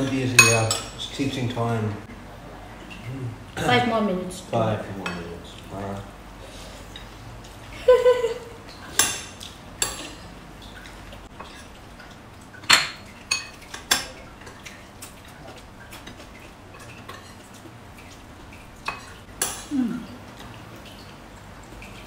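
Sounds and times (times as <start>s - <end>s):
metal spoon clinking ceramic bowl: 0.4s - 0.9s.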